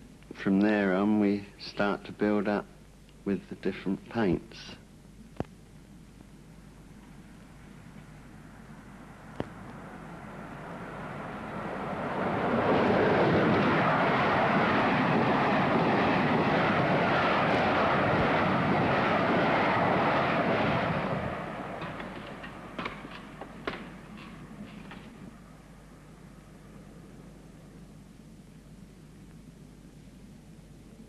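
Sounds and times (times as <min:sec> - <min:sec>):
loud rushing noise: 0:09.8 - 0:25.4.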